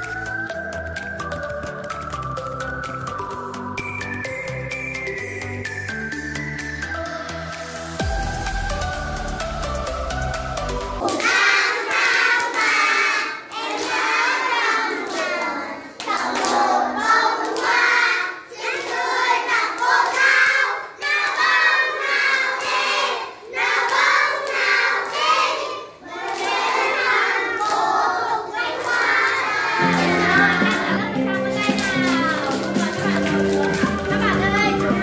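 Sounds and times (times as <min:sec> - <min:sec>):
hands clapping: 0:00.0 - 0:05.9, 0:10.6 - 0:35.0
electronic music intro: 0:00.0 - 0:11.1
children singing together: 0:10.9 - 0:35.0.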